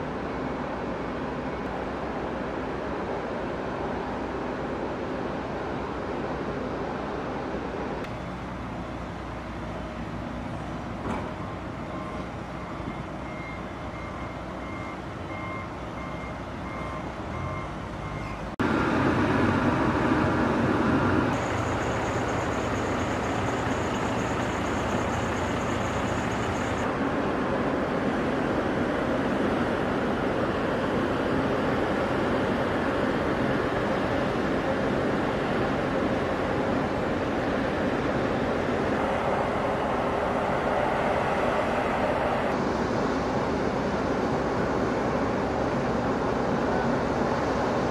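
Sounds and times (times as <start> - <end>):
diesel engines running: 0.0 - 47.9
reversing alarm beeping: 11.3 - 18.6, 21.4 - 26.8
thin high whine: 21.3 - 27.0.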